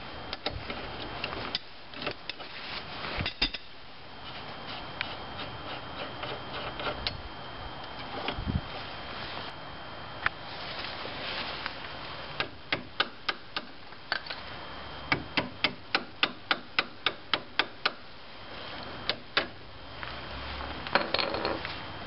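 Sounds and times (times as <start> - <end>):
hammer striking wood block: 15.1 - 18.0.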